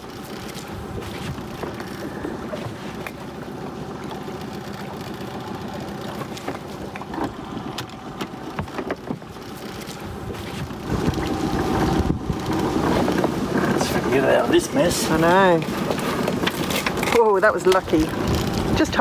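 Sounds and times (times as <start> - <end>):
outboard motor idling: 0.0 - 19.0.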